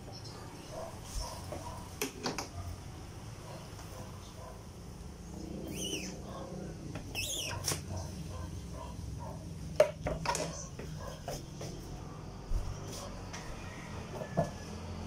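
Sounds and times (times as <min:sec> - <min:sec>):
steady low hum: 0:02.6 - 0:15.0.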